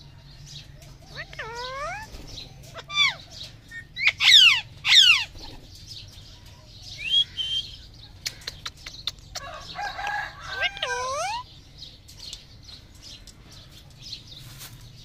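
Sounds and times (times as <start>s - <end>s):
parakeets screeching: 1.1s - 5.8s, 9.4s - 11.5s.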